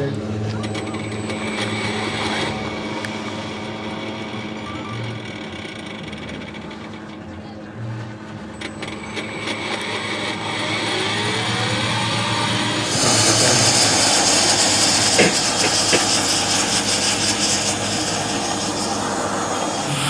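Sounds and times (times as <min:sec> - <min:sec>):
turbine whine rising: 0:00.0 - 0:07.2, 0:08.4 - 0:20.0
jet-like turbine hiss: 0:09.2 - 0:20.0.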